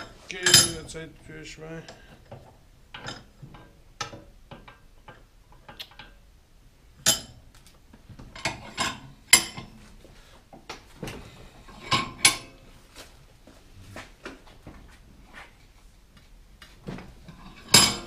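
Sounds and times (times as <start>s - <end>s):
tools clinking on bike frame: 0.4s - 1.0s.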